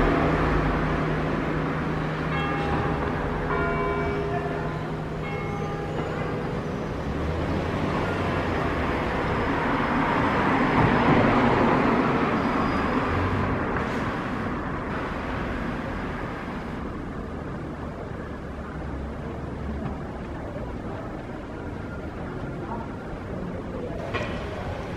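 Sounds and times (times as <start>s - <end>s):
church bells ringing: 0.0s - 9.6s, 24.0s - 24.9s
road vehicle passing: 0.0s - 24.9s.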